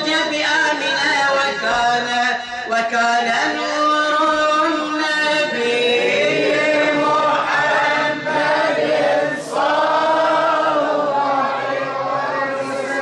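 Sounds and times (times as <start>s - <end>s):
men chanting: 2.8s - 13.0s.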